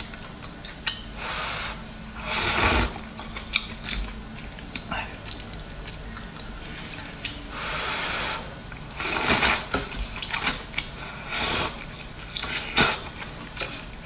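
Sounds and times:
slurping noodles: 0:01.3 - 0:03.1, 0:07.6 - 0:13.2.

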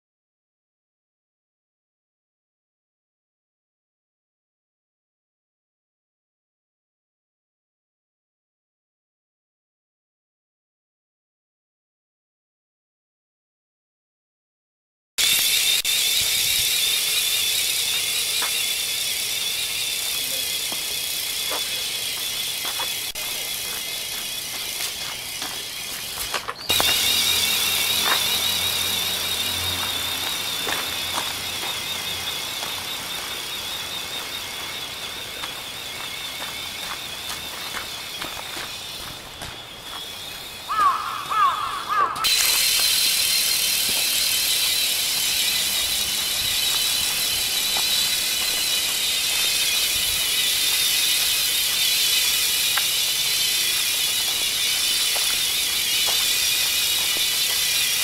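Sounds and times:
electric motor whine: 0:15.2 - 0:40.9, 0:42.2 - 0:58.0
squeaky chirping: 0:23.9 - 0:41.3.

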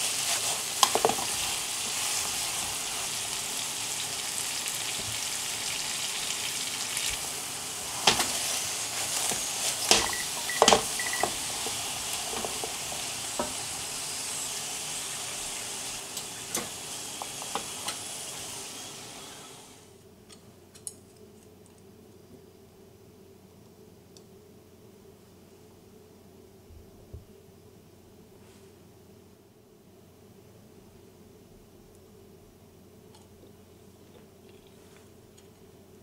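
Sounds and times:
glaze sizzling in frying pan: 0:00.0 - 0:19.9.

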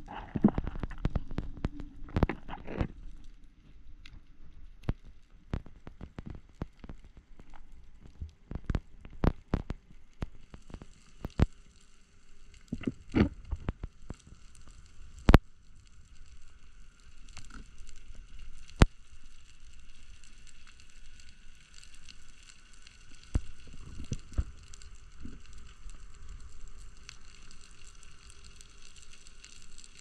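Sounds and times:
faint crackling hiss: 0:00.0 - 0:30.0
underwater clicks and knocks: 0:00.1 - 0:03.1, 0:12.7 - 0:14.2.

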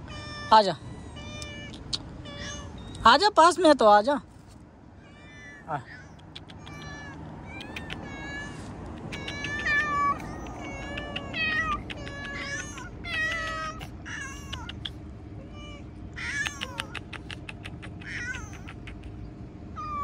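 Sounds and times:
cats meowing: 0:00.0 - 0:03.0, 0:05.0 - 0:19.2, 0:19.8 - 0:20.0.

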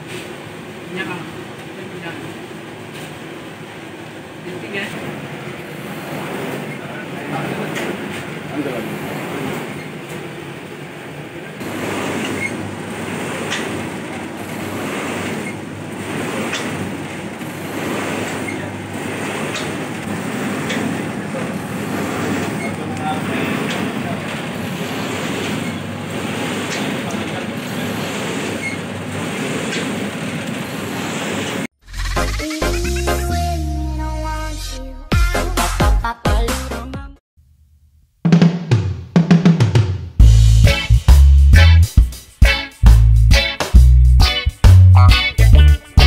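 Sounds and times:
slicing machine running: 0:11.6 - 0:31.7.

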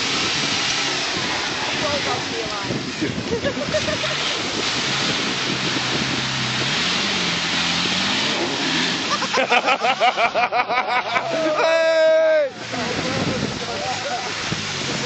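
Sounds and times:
mud and water thrown by tyres: 0:00.0 - 0:15.0
off-road vehicle engine pulling hard: 0:00.0 - 0:15.0.

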